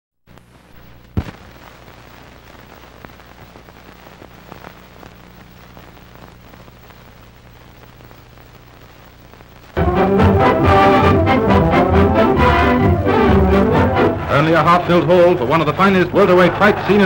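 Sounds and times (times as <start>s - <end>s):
film soundtrack hiss and crackle: 0.2s - 17.0s
low mains hum: 0.3s - 9.8s.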